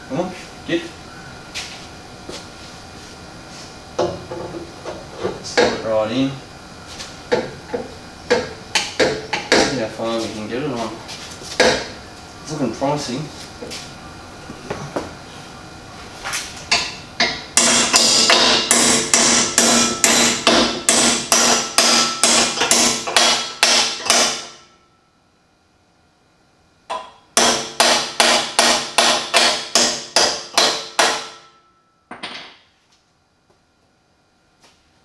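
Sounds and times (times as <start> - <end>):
hammer blows on ringing metal: 16.7 - 24.8
metal ringing: 16.7 - 24.8.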